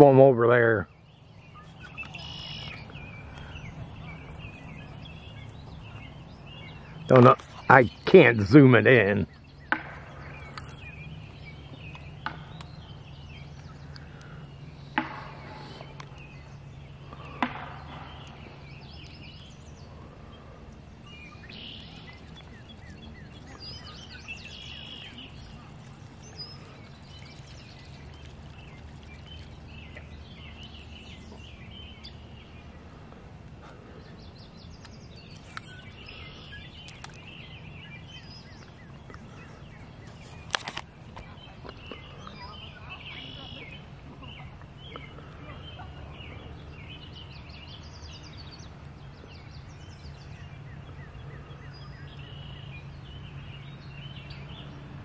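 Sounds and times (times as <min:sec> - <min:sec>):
birds chirping and singing: 0:00.0 - 0:55.0
low steady drone: 0:00.0 - 0:55.0.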